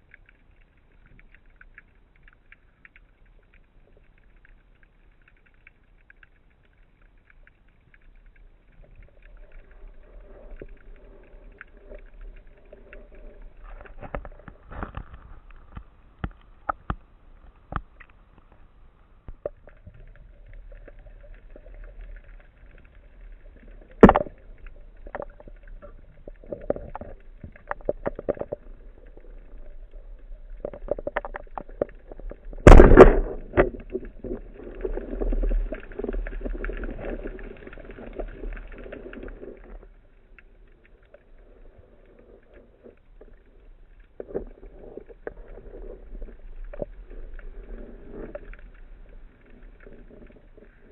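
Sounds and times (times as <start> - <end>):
rushing water: 6.7 - 50.9
loud thump: 32.6 - 33.4.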